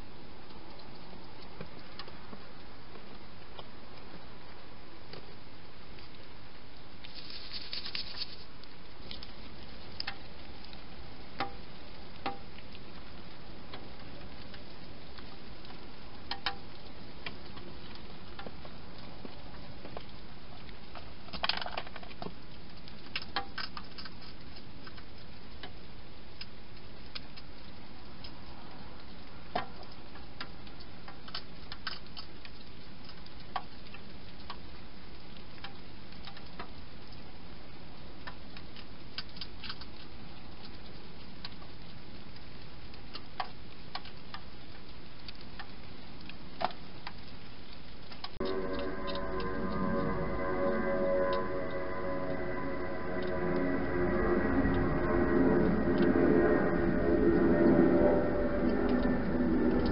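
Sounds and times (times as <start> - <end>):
steady hiss: 4.2 - 21.2.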